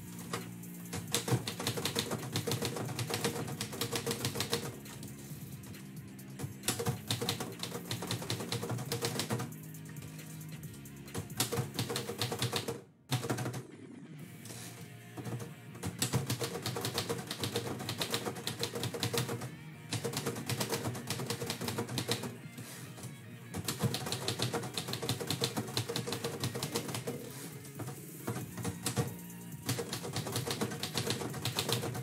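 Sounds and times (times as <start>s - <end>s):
background music: 0.0s - 32.0s
typewriter keystrokes: 1.0s - 4.8s, 6.6s - 9.5s, 11.2s - 13.6s, 15.8s - 22.3s, 23.6s - 27.3s, 28.3s - 32.0s.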